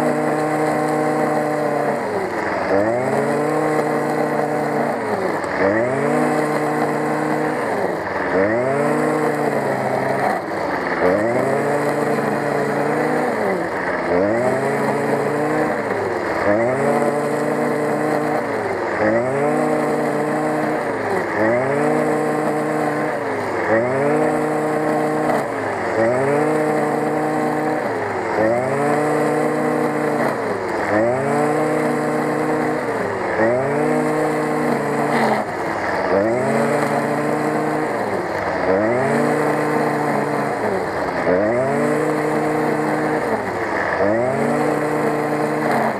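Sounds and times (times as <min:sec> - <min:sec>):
brush cutter engine running: 0:00.0 - 0:45.9.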